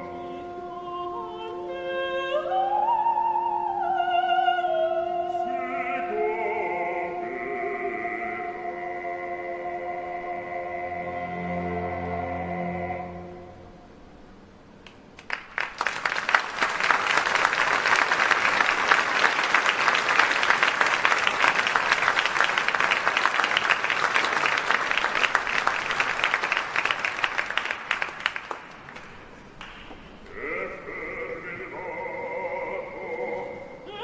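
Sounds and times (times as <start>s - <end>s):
audience applauding: 15.2s - 30.6s.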